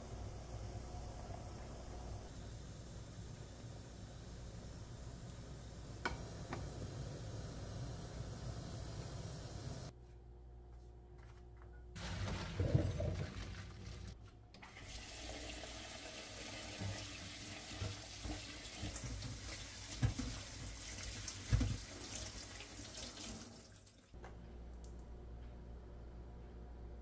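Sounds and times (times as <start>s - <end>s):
tap water splashing into sink: 14.6s - 24.1s.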